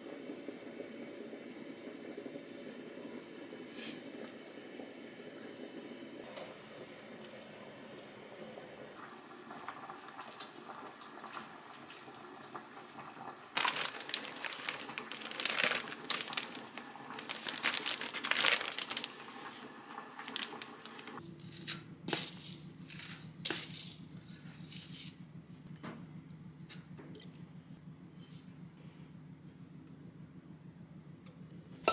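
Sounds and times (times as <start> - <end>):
plastic bag crinkling: 13.5 - 21.2.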